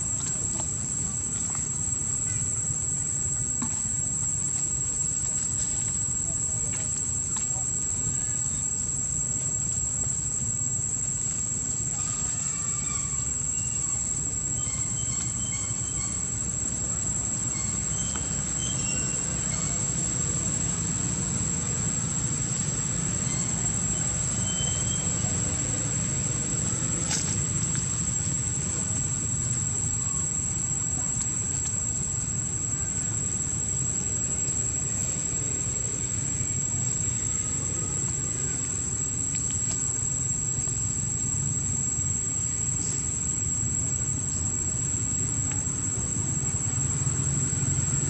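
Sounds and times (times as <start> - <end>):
high-pitched insect drone: 0.0 - 48.0
faint clicks: 39.2 - 39.8.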